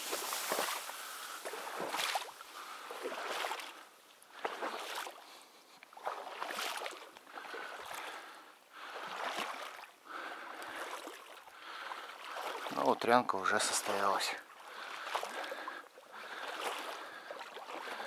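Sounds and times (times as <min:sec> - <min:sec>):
footsteps through wet reeds: 0:00.0 - 0:05.2, 0:05.9 - 0:08.0, 0:13.5 - 0:18.0.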